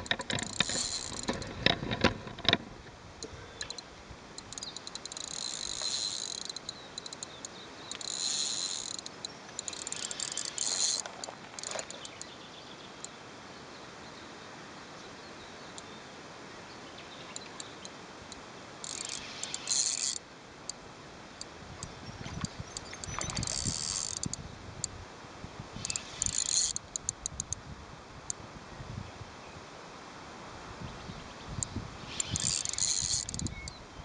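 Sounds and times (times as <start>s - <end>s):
fishing reel whirring: 0.4s - 1.5s, 4.4s - 7.3s, 7.9s - 12.2s, 18.8s - 20.2s, 22.7s - 24.4s, 25.8s - 27.6s, 32.1s - 33.6s
sharp ticks: 3.6s - 12.3s, 18.8s - 20.8s, 22.7s - 24.4s, 25.8s - 27.6s, 32.1s - 33.8s.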